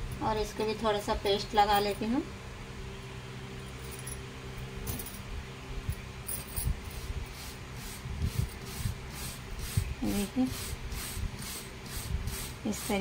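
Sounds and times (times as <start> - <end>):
brush scrubbing chain: 6.3 - 13.0.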